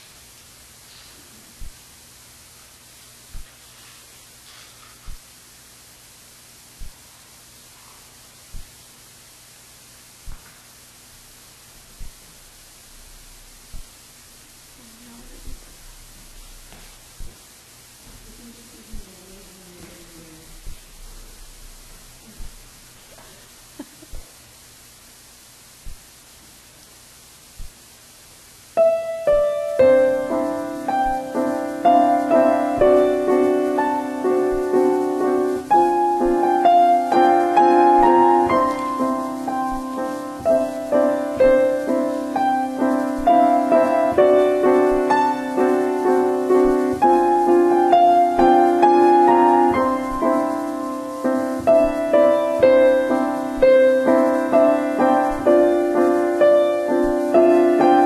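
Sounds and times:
solo piano playing: 28.8 - 58.0.

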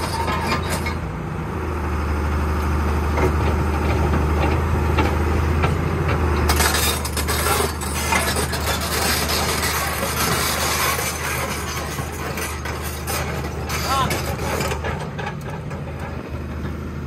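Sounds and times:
excavator diesel engine running: 0.0 - 17.0
gravel and stones clattering: 3.3 - 16.8.

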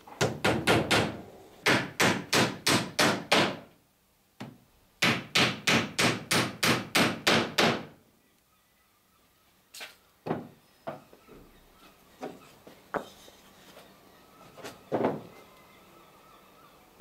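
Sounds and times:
tools knocking on wooden planks: 10.3 - 11.1.

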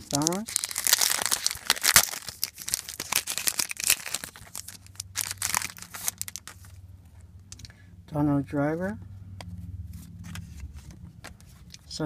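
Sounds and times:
wrapper tearing and crinkling: 0.0 - 6.8.

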